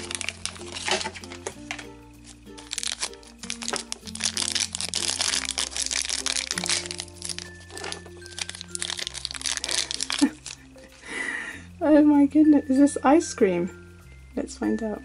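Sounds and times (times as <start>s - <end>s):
wrapper crinkling: 0.0s - 11.1s
background music: 0.0s - 15.0s.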